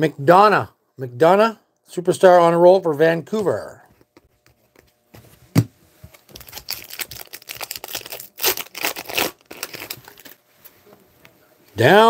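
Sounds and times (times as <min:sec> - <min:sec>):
foil wrapper tearing and crinkling: 0:06.3 - 0:10.4.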